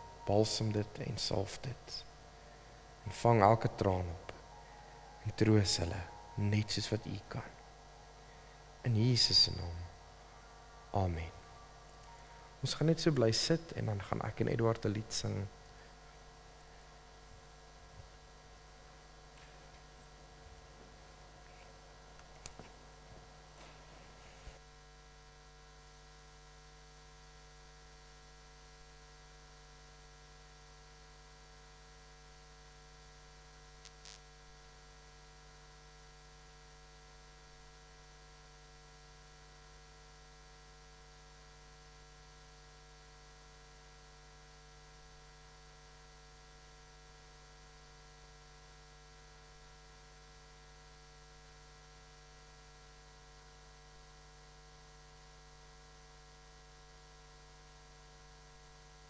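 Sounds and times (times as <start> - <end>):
electrical mains hum: 0.0 - 59.0.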